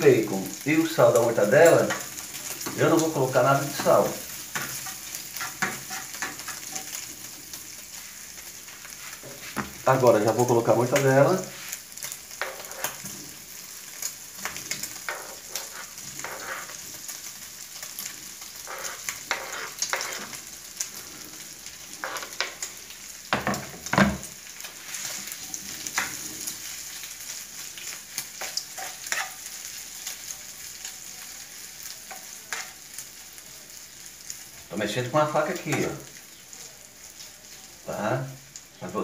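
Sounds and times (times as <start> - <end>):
meat sizzling in a frying pan: 0.0 - 39.0
knife scraping and stirring: 3.6 - 7.0, 11.4 - 13.3, 14.5 - 17.0, 18.6 - 20.4, 22.0 - 22.6, 28.4 - 29.5.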